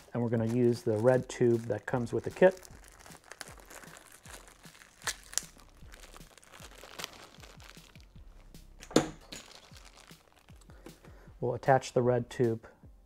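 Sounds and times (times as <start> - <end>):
plastic packaging crinkling: 0.0 - 10.8.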